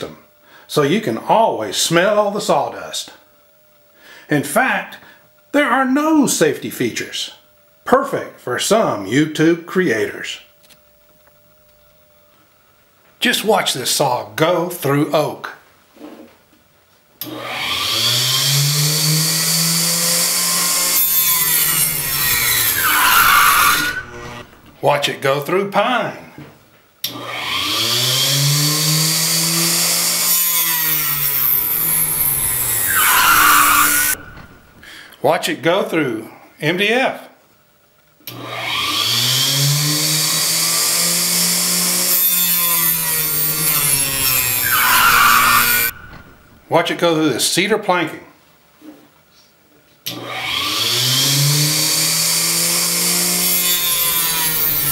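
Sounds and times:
table saw cutting wood: 0:17.2 - 0:24.8, 0:27.1 - 0:34.8, 0:38.3 - 0:46.7, 0:50.1 - 0:54.9.

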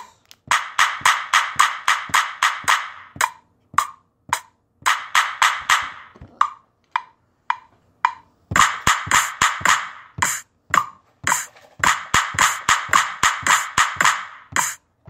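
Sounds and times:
wood-block percussion beat: 0:00.0 - 0:14.9.

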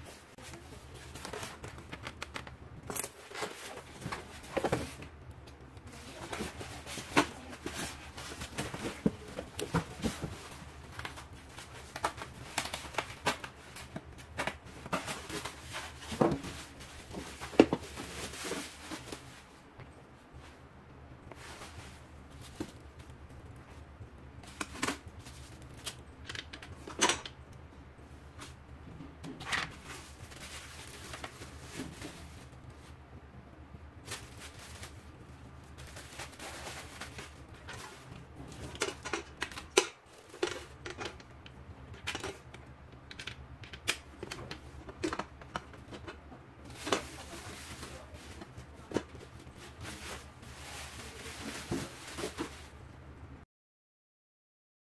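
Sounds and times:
steady low hum: 0:00.0 - 0:53.4
plastic wrapping crinkling: 0:00.4 - 0:19.6, 0:29.6 - 0:33.0, 0:34.0 - 0:52.8.

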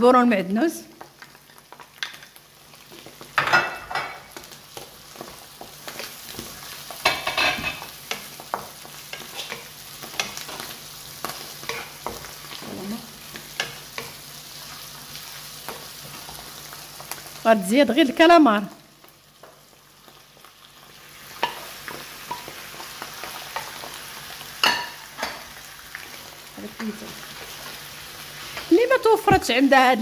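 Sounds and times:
vegetables sizzling in a frying pan: 0:00.0 - 0:30.0
spatula scraping a pan: 0:05.8 - 0:10.7, 0:11.4 - 0:12.6.

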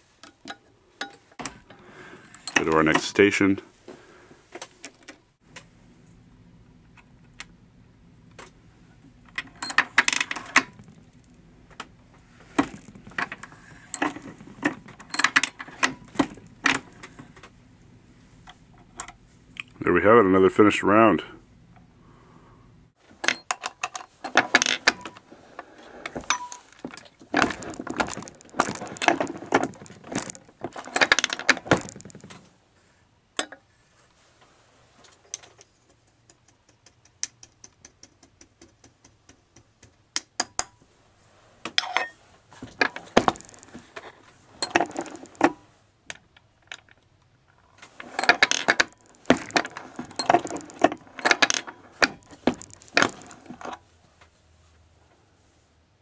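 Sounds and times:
brass cases clinking: 0:12.5 - 0:17.2, 0:26.2 - 0:32.4, 0:44.6 - 0:45.6, 0:48.0 - 0:53.7
reloading press clicking and clattering: 0:12.6 - 0:17.1, 0:27.3 - 0:32.4, 0:42.8 - 0:43.8, 0:44.6 - 0:45.6, 0:48.0 - 0:53.7.

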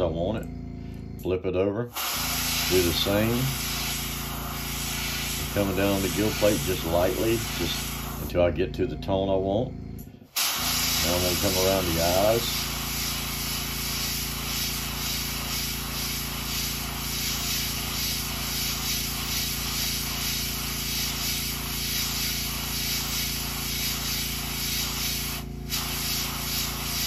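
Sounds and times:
steady low hum: 0:00.0 - 0:27.0
airbrush spraying hiss: 0:01.9 - 0:08.4, 0:10.3 - 0:27.0.

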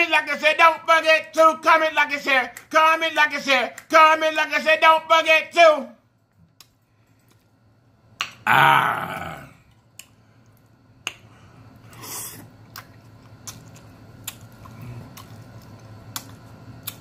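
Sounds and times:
man's wordless vocal sound: 0:08.5 - 0:09.6
chewing: 0:11.9 - 0:17.0.

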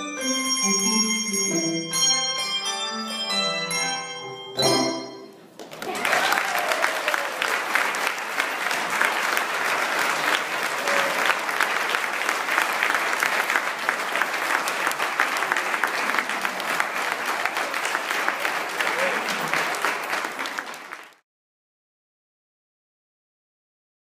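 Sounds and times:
audience applauding: 0:05.4 - 0:21.2.

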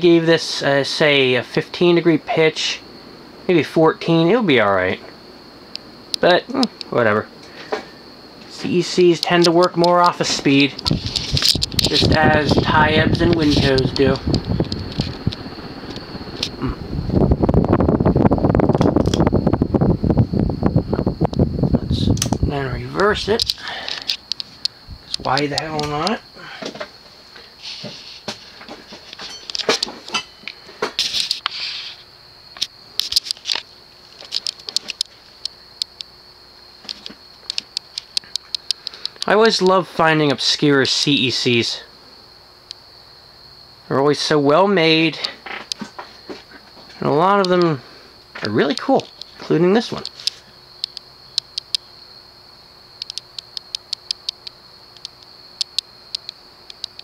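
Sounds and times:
ceiling fan whining: 0:00.0 - 0:57.0
light clicks and ticks: 0:23.0 - 0:26.2, 0:32.6 - 0:36.1, 0:36.8 - 0:39.4, 0:47.4 - 0:47.7, 0:48.4 - 0:51.9, 0:53.0 - 0:57.0
light ticks: 0:36.8 - 0:39.4, 0:50.0 - 0:51.9, 0:53.0 - 0:57.0.

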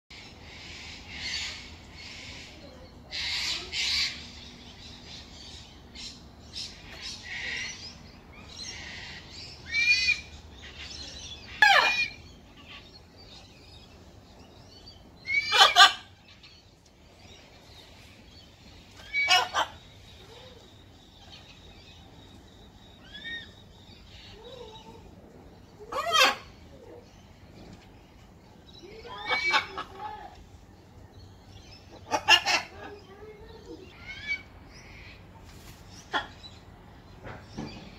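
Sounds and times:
parrots screeching: 0:08.7 - 0:12.8, 0:15.2 - 0:16.2, 0:19.0 - 0:19.8, 0:25.8 - 0:26.6, 0:28.9 - 0:30.3, 0:32.0 - 0:33.0, 0:33.9 - 0:35.0
parrot squawks: 0:11.5 - 0:12.2, 0:15.3 - 0:16.1.

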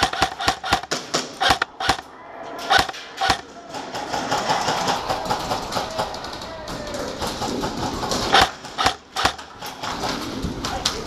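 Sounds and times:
airsoft gun shots: 0:00.0 - 0:02.0, 0:02.7 - 0:03.4, 0:08.3 - 0:09.5.

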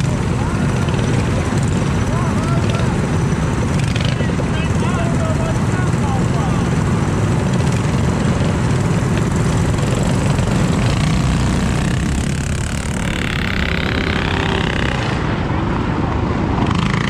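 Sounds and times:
minibike engines running: 0:00.0 - 0:17.0
higher wavering engine tone: 0:08.2 - 0:15.9.

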